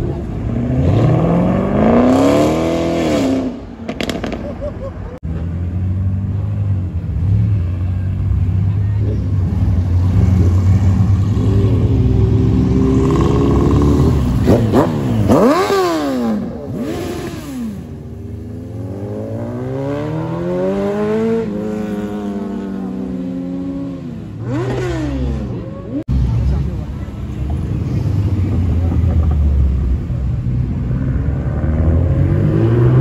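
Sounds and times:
motorcycles revving: 0.0s - 33.0s
motorcycle accelerating away: 0.5s - 4.4s, 10.0s - 26.0s, 30.9s - 33.0s.

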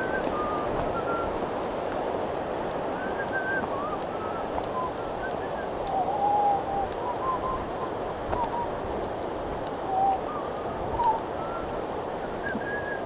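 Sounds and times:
wind rushing through forest: 0.0s - 13.0s.

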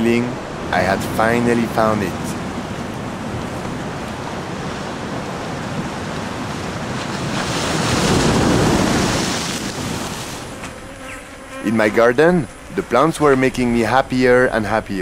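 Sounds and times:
surf washing over rocks: 0.0s - 10.8s.

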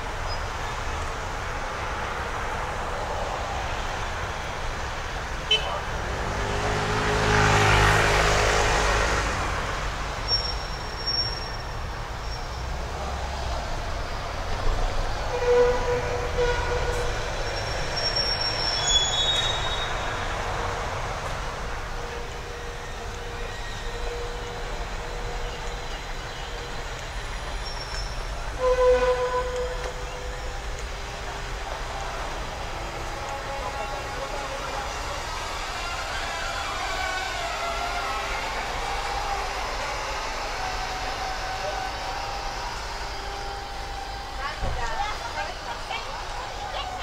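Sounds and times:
heavy vehicle engine passing: 0.0s - 11.0s, 29.4s - 47.0s
steady traffic rush: 0.0s - 47.0s
high-pitched squeals: 10.1s - 13.5s, 14.6s - 31.2s, 32.2s - 47.0s.

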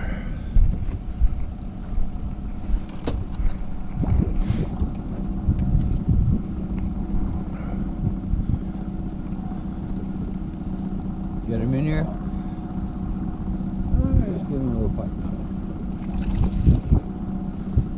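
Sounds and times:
outboard motor running: 0.0s - 17.9s
wind rumbling on microphone: 0.0s - 17.9s.

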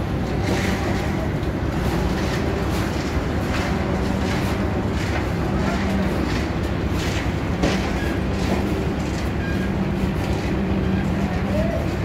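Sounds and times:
construction machinery engine droning: 0.0s - 12.0s.

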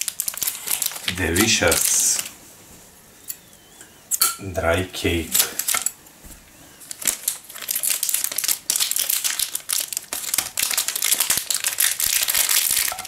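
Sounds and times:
plastic wrapper crinkling: 0.0s - 2.4s, 5.4s - 5.8s, 6.8s - 13.0s.

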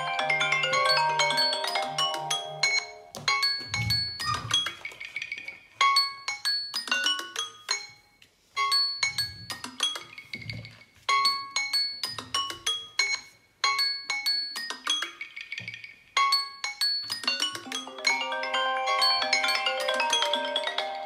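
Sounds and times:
phone alarm chiming melody: 0.0s - 4.5s, 17.7s - 21.0s.

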